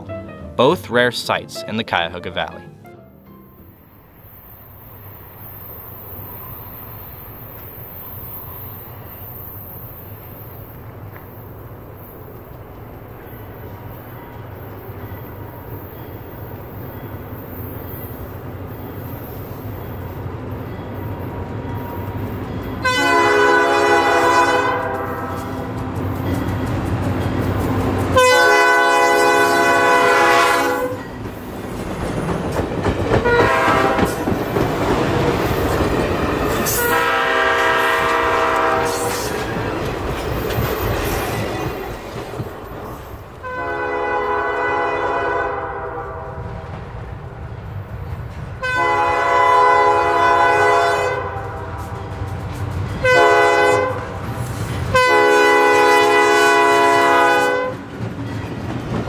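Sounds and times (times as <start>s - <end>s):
locomotive horn blasts: 22.8s - 25.7s, 28.2s - 31.0s, 33.2s - 34.2s, 36.6s - 39.3s, 43.4s - 46.4s, 48.6s - 51.9s, 53.0s - 54.1s, 54.9s - 57.8s
wheels clicking over rail joints: 31.0s - 37.0s, 37.9s - 43.4s.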